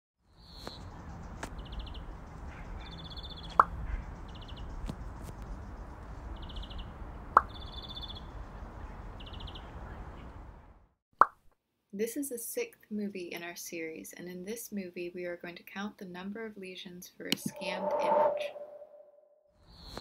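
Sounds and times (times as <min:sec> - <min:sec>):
birds chirping in fast trills: 0:00.4 - 0:06.9
soft low rumble: 0:17.5 - 0:19.2.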